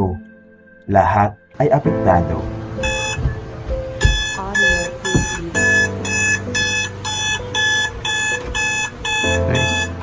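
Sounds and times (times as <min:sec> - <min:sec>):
phone alarm beeping: 0:02.8 - 0:03.4, 0:04.0 - 0:10.0.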